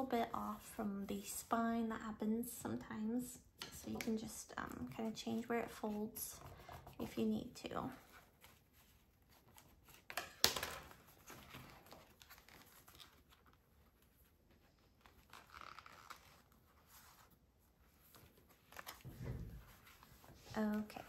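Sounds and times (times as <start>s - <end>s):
paper rustling and crinkling: 7.8s - 21.0s.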